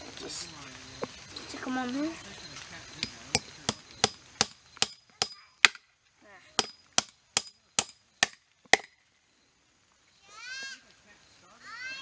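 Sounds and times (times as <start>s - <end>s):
hammer striking a nail: 3.7s - 5.8s, 6.6s - 8.9s.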